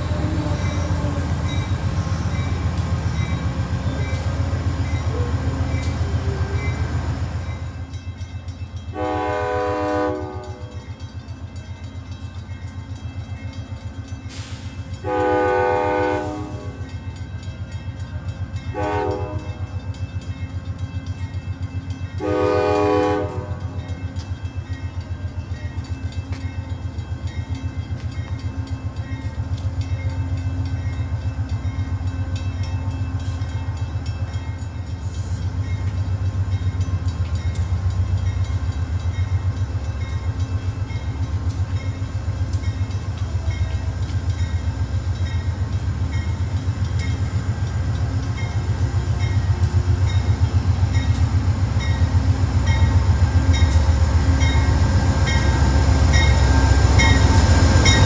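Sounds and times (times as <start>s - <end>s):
diesel locomotive engine rumble: 0.0s - 58.0s.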